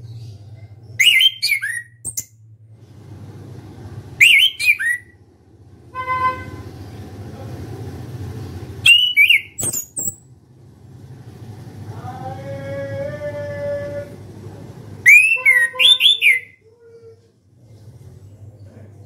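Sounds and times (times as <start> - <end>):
thrush singing whistled notes: 1.0 - 2.3, 4.2 - 5.2, 8.8 - 10.2, 15.1 - 16.6.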